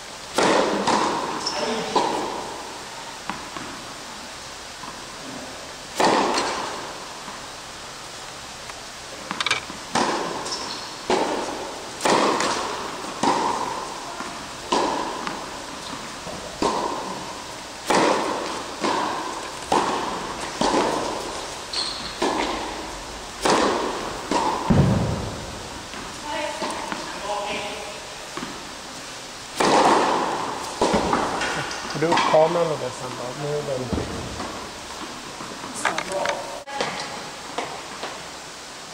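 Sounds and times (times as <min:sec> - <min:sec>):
tennis ball bouncing on court: 0:00.3 - 0:02.5, 0:03.2 - 0:03.8, 0:06.0 - 0:07.4, 0:09.2 - 0:28.6, 0:29.6 - 0:32.4, 0:33.9 - 0:38.2
tennis ball struck by racket: 0:00.3 - 0:02.5, 0:06.0 - 0:06.7, 0:09.2 - 0:27.1, 0:29.6 - 0:32.4.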